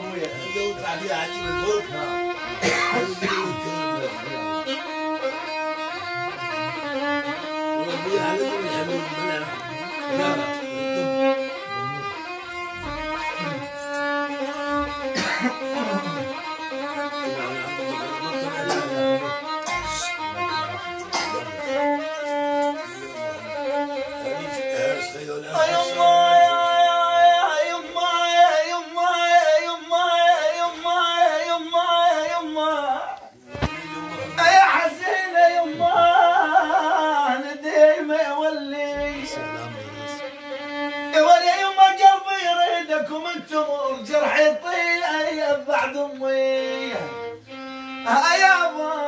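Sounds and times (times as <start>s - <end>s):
violin solo melody: 0.0s - 43.2s, 44.5s - 49.0s
man singing ornamented folk line: 25.5s - 40.3s, 41.1s - 47.4s, 48.0s - 49.0s.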